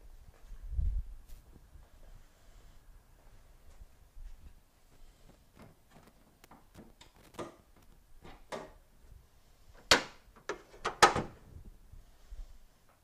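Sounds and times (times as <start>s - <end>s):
hood latch clicks and rattles: 9.8s - 11.4s.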